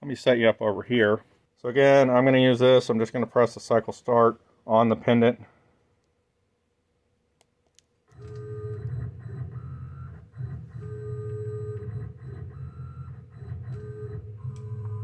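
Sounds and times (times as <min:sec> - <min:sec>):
milling machine motor whine: 0:08.2 - 0:15.0.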